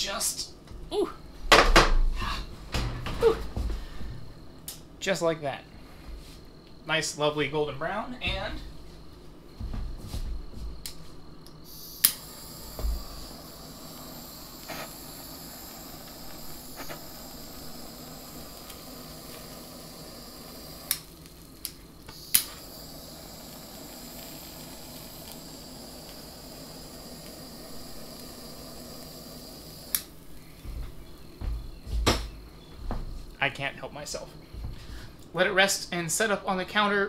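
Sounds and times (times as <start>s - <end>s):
sharp clicks: 10.8s - 12.2s, 20.9s - 22.6s, 29.9s - 30.1s
culinary torch hissing: 10.9s - 36.9s.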